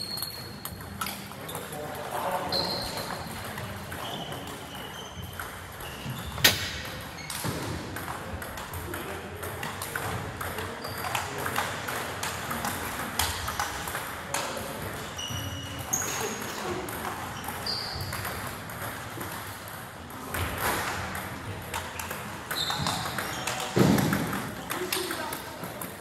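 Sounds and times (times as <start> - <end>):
short high squeaks: 0.0 - 0.7, 2.5 - 3.2, 15.0 - 16.5, 17.4 - 18.2
table tennis balls clicking: 0.0 - 26.0.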